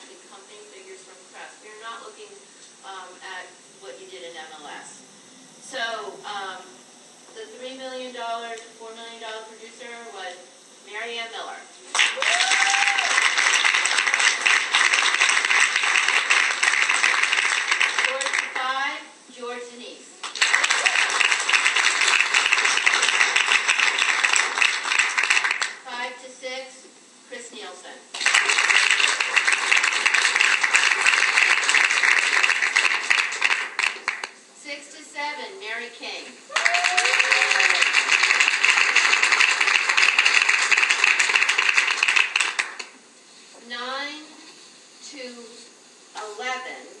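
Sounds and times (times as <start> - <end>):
audience applauding: 11.9 - 18.6, 20.2 - 25.8, 28.2 - 34.4, 36.5 - 42.9
person whooping: 12.1 - 13.4, 20.5 - 21.2, 36.5 - 38.0.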